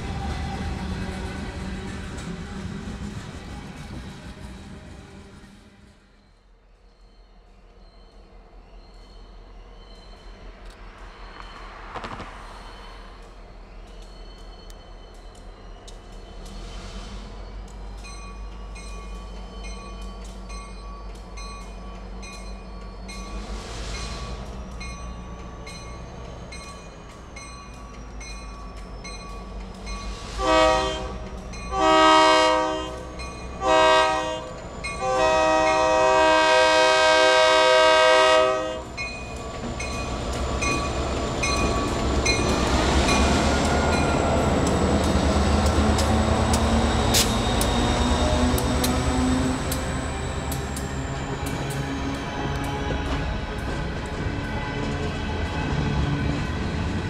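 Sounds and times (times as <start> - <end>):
diesel locomotive engine rumbling: 0.0 - 57.0
locomotive air horn blasts: 30.4 - 38.9.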